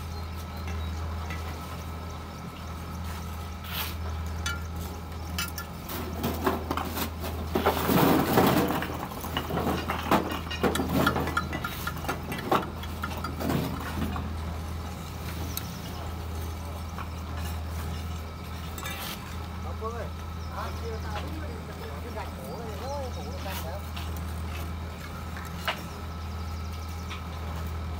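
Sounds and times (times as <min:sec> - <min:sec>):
bricks clinking: 0:05.4 - 0:14.4
trowel scraping and tapping bricks: 0:06.3 - 0:14.0.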